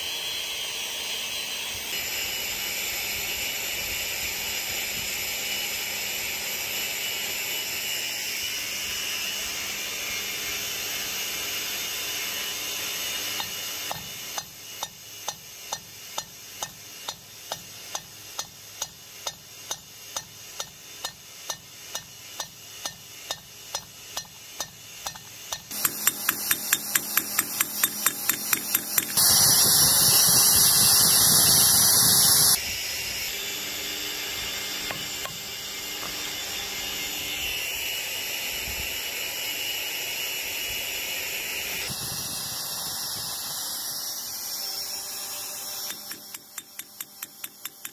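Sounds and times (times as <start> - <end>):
hammer striking nail on vise: 16.2 - 29.7, 45.9 - 47.9
loud steady noise: 25.2 - 33.2.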